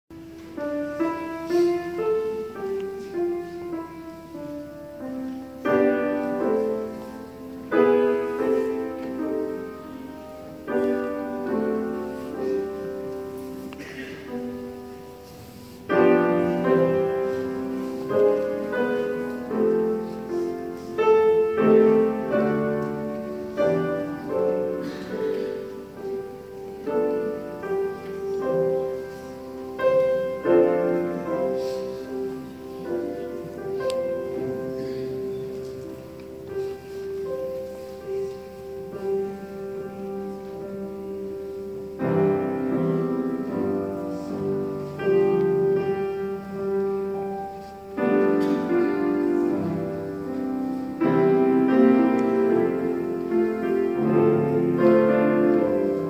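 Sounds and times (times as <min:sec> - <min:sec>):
grand piano playing: 0:00.0 - 0:56.0.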